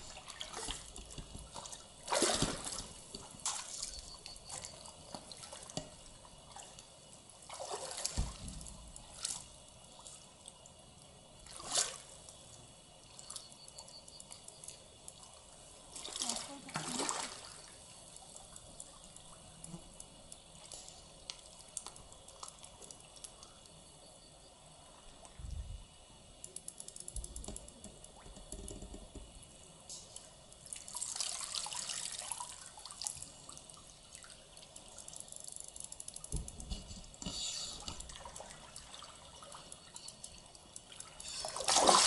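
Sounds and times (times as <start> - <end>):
water splashing around wading legs: 0.0 - 5.7, 7.4 - 8.4, 40.9 - 42.0
water drips: 0.0 - 23.8, 26.4 - 42.0.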